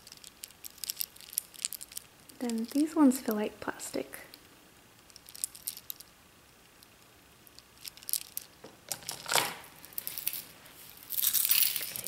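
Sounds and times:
beads clicking together: 0.0s - 3.1s, 5.0s - 9.3s
bracelet rustle: 0.0s - 3.4s, 5.0s - 12.0s.

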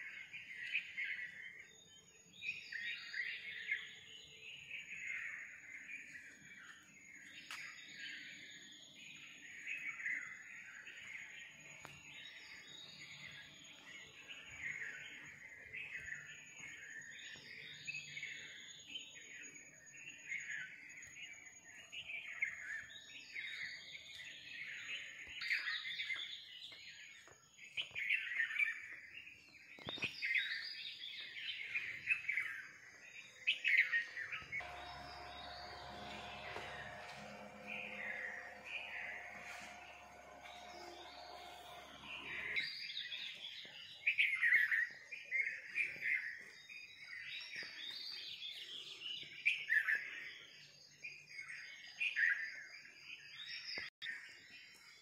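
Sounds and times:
faint high-pitched whine: 34.4s - 43.3s.

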